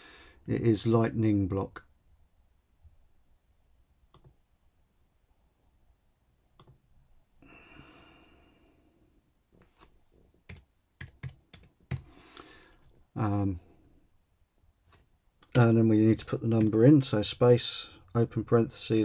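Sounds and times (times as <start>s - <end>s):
soft exhale: 7.4s - 8.9s
computer keyboard keystrokes: 10.5s - 12.1s, 16.5s - 16.8s.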